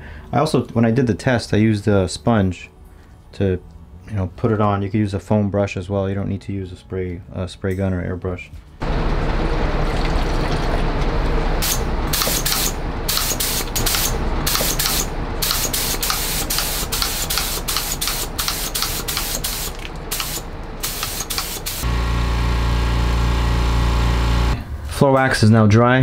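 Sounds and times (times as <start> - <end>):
steady hum: 10.7 - 25.5
spray gun hissing: 11.6 - 21.9.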